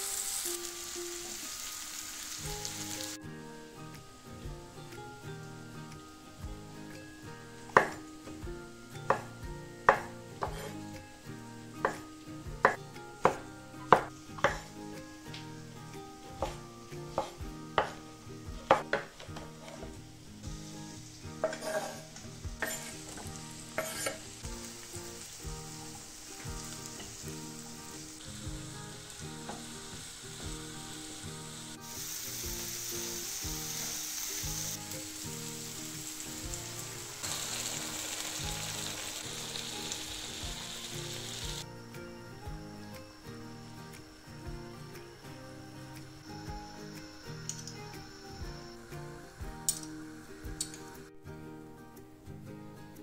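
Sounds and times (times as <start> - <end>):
onions sizzling in frying pan: 0.0 - 51.1
spatula stirring in pan: 21.4 - 28.7.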